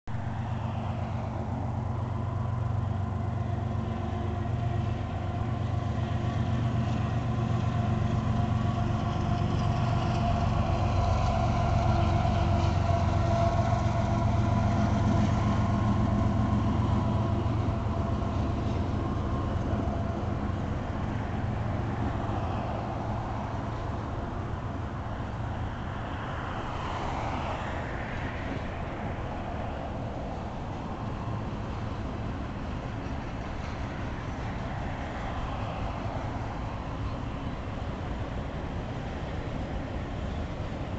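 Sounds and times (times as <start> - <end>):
locomotive engine drone: 0.1 - 40.9
rail cars rumbling: 0.1 - 40.9.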